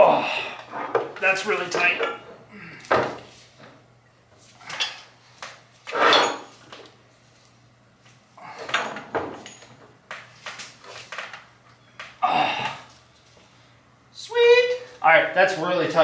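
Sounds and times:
metal pipe fittings scraping and clanking: 5.9s - 6.6s.

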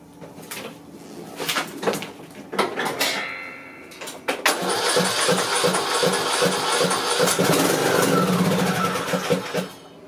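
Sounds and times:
lawn mower engine running: 4.5s - 9.9s.

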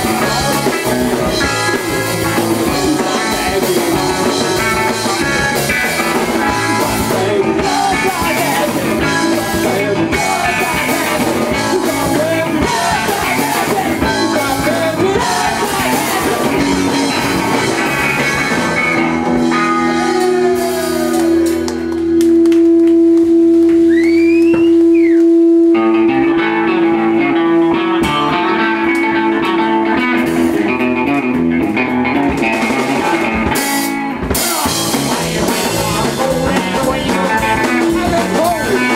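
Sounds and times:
person singing: 0.0s - 18.3s, 34.2s - 38.9s
punk rock band playing live: 0.0s - 25.1s, 25.8s - 38.9s.

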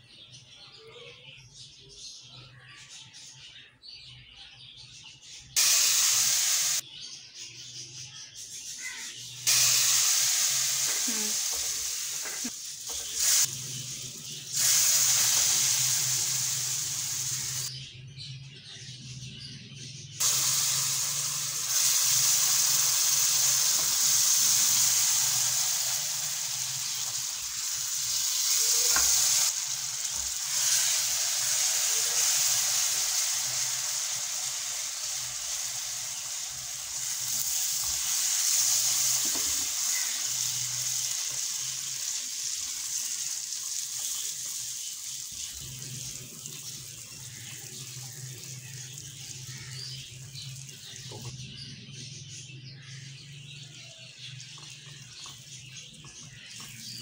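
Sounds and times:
semolina sizzling in a wok: 5.5s - 6.8s, 8.4s - 17.8s, 20.2s - 51.6s
mixture sizzling and bubbling: 5.6s - 6.8s, 8.8s - 17.7s, 20.2s - 51.4s.

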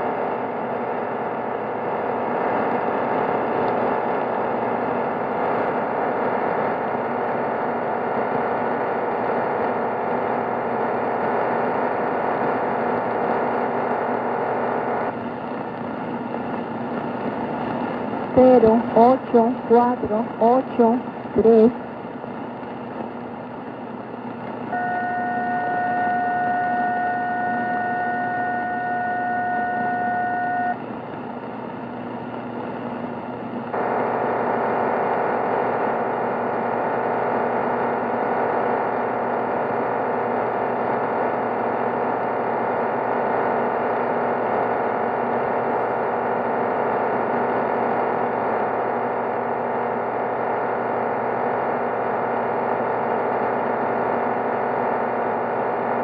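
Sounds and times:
dense rushing radio signal: 0.0s - 56.0s
radio static hiss: 0.0s - 56.0s.

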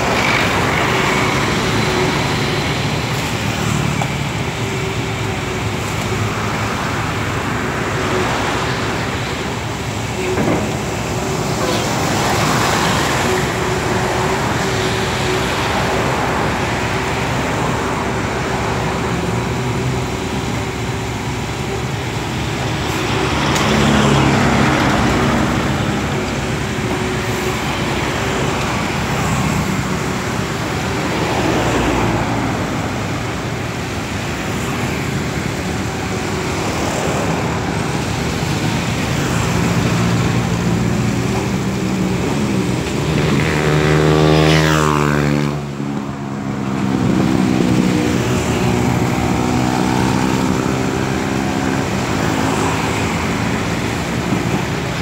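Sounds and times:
excavator diesel engine running: 0.0s - 55.0s
road traffic: 0.0s - 55.0s
passing vehicle engine: 22.4s - 55.0s.

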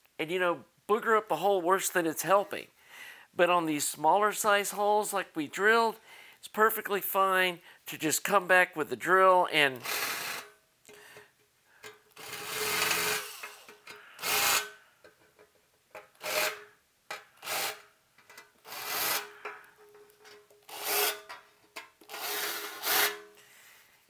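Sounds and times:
drill whirring in metal: 9.8s - 10.5s, 12.2s - 14.8s, 16.2s - 16.6s, 17.4s - 17.9s, 18.6s - 19.3s, 20.7s - 21.3s, 22.1s - 23.2s.

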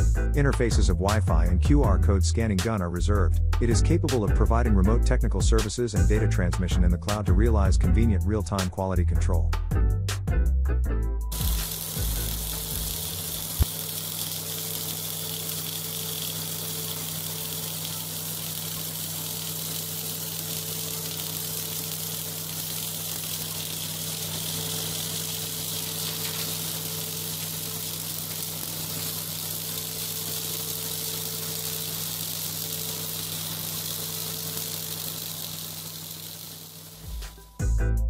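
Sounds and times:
welding arc hissing and sizzling: 11.3s - 37.6s
steady low hum: 11.3s - 37.7s.

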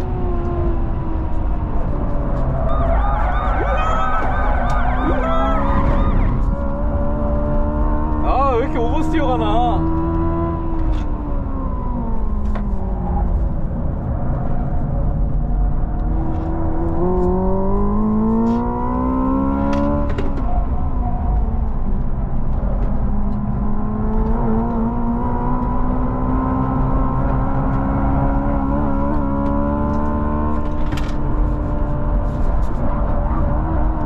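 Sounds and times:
electric car drive tone: 2.4s - 7.4s.

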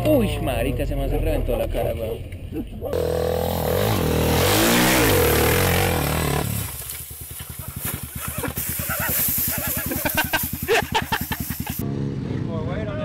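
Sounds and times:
dirt bike engine revving: 2.8s - 12.4s.

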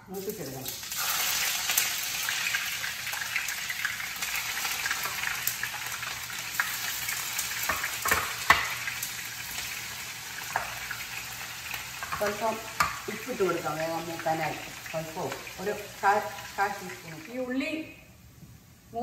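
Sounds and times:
onions sizzling in oil: 0.0s - 19.0s
spatula knocking pan: 7.6s - 8.9s, 12.0s - 13.1s.

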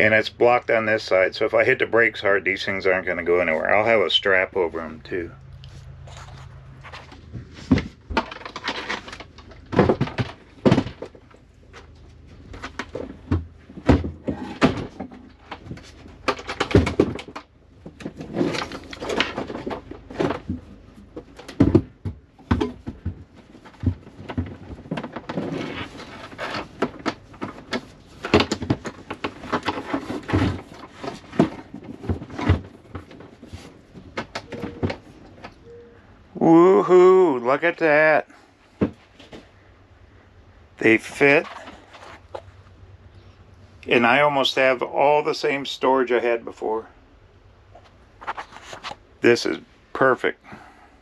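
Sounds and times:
batteries knocking and scraping on plywood: 5.6s - 35.6s.

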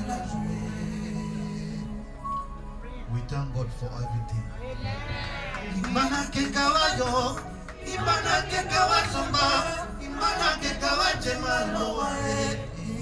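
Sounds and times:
man singing through microphone: 0.0s - 2.5s, 5.6s - 13.0s
amplified backing music: 0.0s - 13.0s.

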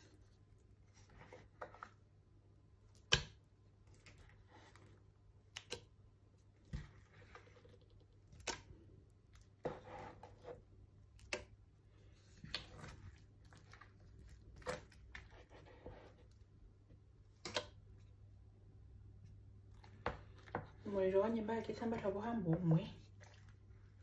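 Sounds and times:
spoon scraping butter: 6.7s - 16.6s.

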